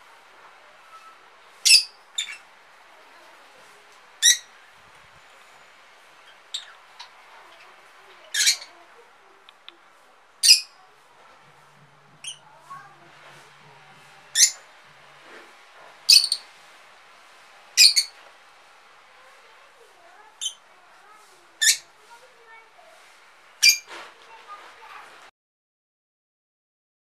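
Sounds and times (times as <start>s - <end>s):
lovebirds squawking: 4.2s - 4.6s, 6.1s - 8.8s, 14.3s - 14.7s, 16.1s - 16.5s, 17.8s - 18.2s, 23.6s - 23.9s
quiet bird chirps: 16.1s - 16.5s.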